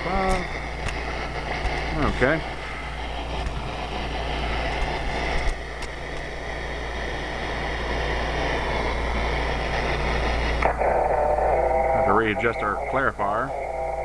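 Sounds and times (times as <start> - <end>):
low hum: 0.0 - 14.0
radio static hiss: 0.0 - 14.0.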